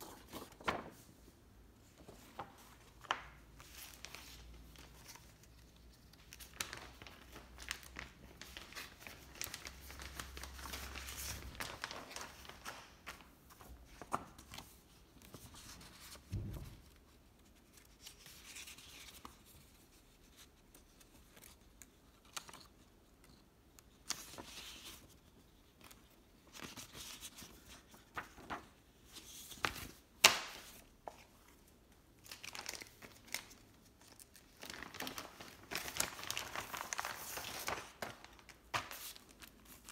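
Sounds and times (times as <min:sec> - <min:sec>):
paper rustling and crinkling: 0:00.0 - 0:01.2, 0:01.8 - 0:39.9.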